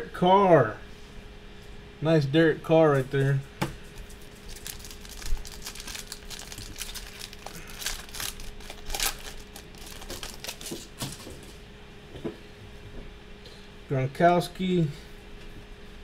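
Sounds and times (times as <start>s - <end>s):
foil wrapper crinkling and tearing: 4.0s - 11.2s.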